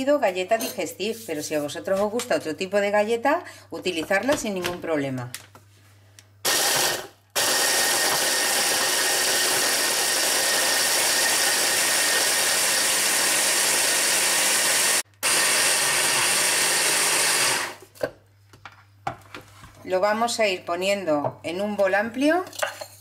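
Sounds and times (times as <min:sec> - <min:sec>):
electric chopper grinding: 0:06.5 - 0:17.8.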